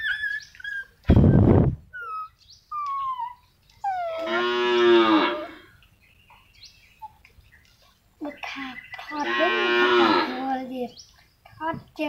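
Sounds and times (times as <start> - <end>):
dogs whimpering: 0.0 - 5.6
dog whining cry: 0.0 - 5.7.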